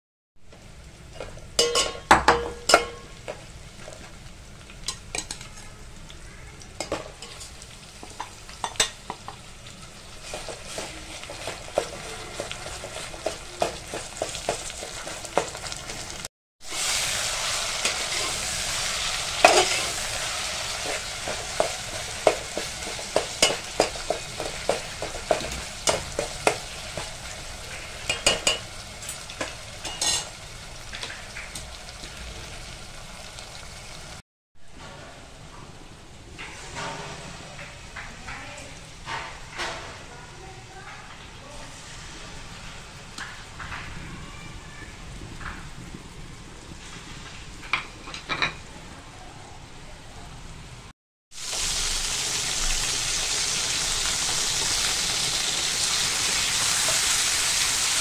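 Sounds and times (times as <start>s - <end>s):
food sizzling in oil: 0.4s - 34.2s, 36.4s - 48.8s, 51.3s - 58.0s
spatula scraping a pot: 10.2s - 15.7s, 19.4s - 26.2s.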